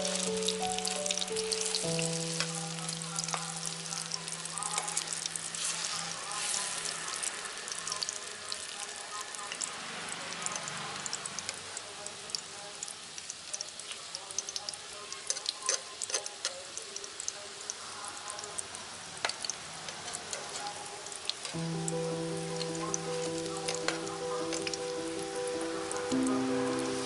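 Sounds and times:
soft background music: 0.0s - 11.2s, 20.3s - 27.0s
fritters sizzling in hot oil: 0.0s - 27.0s.

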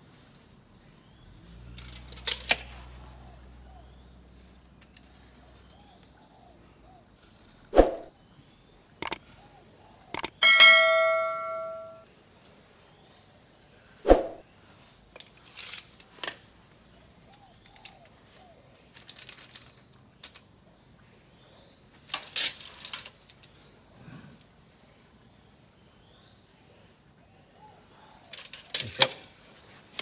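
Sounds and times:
mouse click: 10.2s - 10.4s
bell-like notification ding: 10.4s - 12.0s.

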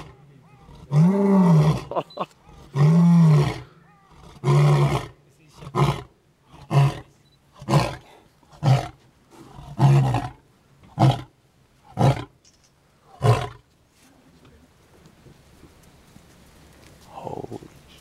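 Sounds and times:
lion roaring grunts: 0.0s - 10.4s.

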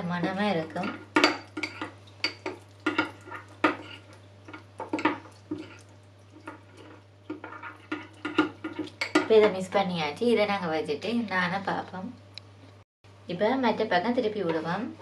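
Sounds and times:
spoon clinking and scraping bowl: 0.8s - 9.6s.

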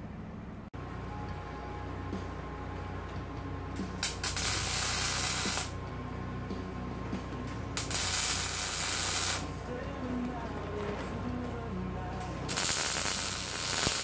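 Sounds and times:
welding arc crackling and hissing: 4.0s - 5.8s, 7.8s - 9.5s, 12.5s - 14.0s.

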